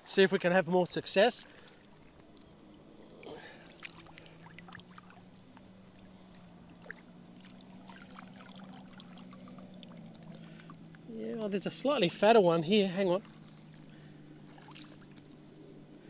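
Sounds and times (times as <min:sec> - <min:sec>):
shallow water splashing and trickling: 0:00.0 - 0:16.0
faint low hum: 0:01.4 - 0:16.0
small ticks: 0:01.5 - 0:07.6
water draining from net mesh: 0:06.8 - 0:10.7.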